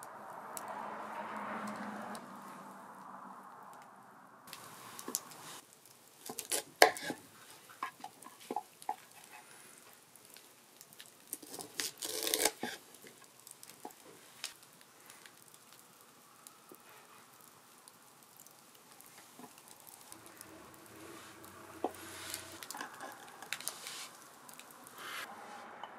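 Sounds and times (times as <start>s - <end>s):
sizzling hiss: 4.5s - 25.7s
rustling scrape: 19.0s - 25.7s.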